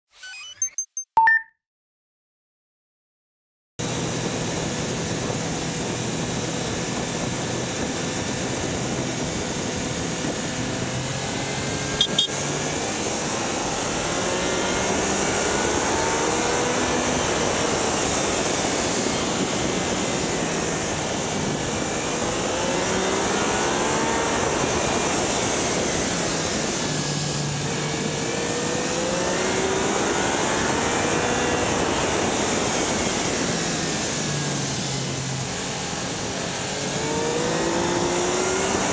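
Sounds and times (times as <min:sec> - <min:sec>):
wind and road rush: 0:03.8 - 0:38.9
motorcycle engine revving: 0:04.0 - 0:38.9.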